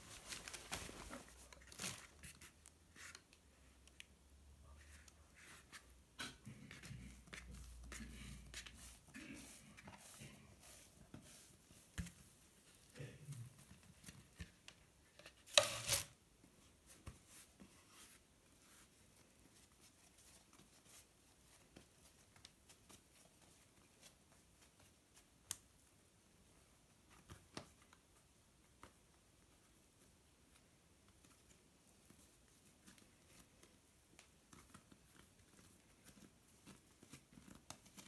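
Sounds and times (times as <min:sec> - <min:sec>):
rustling scrape: 0:00.0 - 0:03.2
hands working dough on a board: 0:01.0 - 0:38.0.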